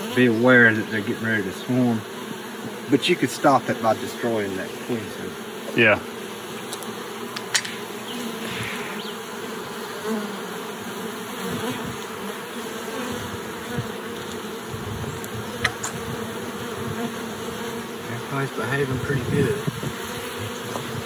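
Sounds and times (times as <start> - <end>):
honeybees buzzing: 0.0 - 21.0
sharp click: 6.7 - 7.8, 15.2 - 16.0.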